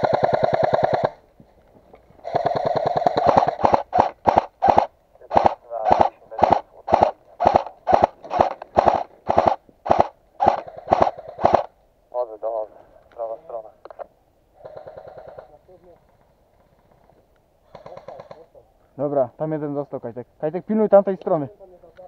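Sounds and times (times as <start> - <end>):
airsoft gun firing full auto: 0.0 - 1.2, 2.2 - 11.7, 14.6 - 15.5.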